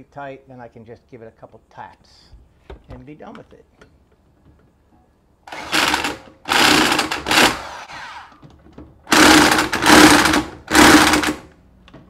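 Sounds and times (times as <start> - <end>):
impact wrench hammering: 5.5 - 7.6, 9.1 - 11.5.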